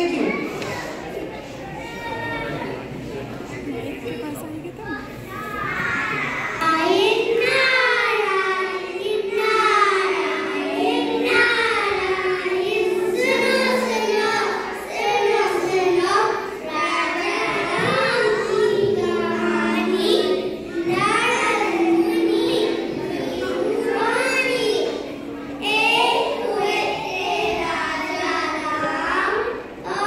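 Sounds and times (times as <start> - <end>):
children singing: 5.3 - 30.0.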